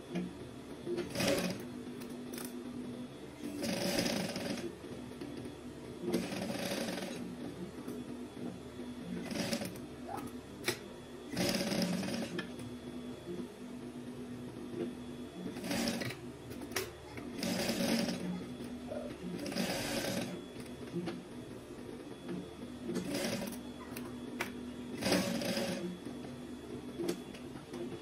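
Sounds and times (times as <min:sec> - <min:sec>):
sewing machine stitching: 0:01.0 - 0:01.6, 0:03.4 - 0:04.7, 0:06.1 - 0:07.2, 0:09.2 - 0:09.8, 0:11.3 - 0:12.5, 0:15.6 - 0:16.2, 0:16.8 - 0:18.3, 0:19.4 - 0:20.4, 0:23.0 - 0:23.6, 0:25.0 - 0:25.9
sewing machine hum: 0:01.0 - 0:02.5, 0:03.4 - 0:05.4, 0:06.1 - 0:07.3, 0:09.2 - 0:09.8, 0:11.3 - 0:12.6, 0:15.5 - 0:20.9, 0:23.0 - 0:23.6, 0:24.9 - 0:26.0.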